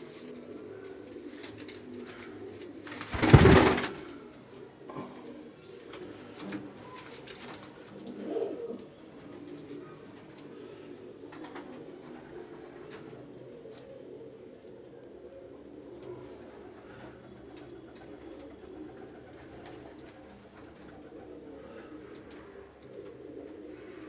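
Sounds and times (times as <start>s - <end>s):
pigeons cooing: 0.0s - 24.0s.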